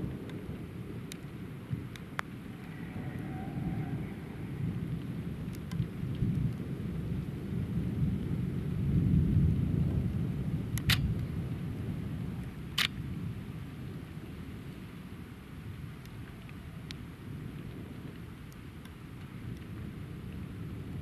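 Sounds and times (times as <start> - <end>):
distant thunder rumbling: 0.0 - 14.9
sharp clicks: 10.8 - 11.1, 12.8 - 13.0.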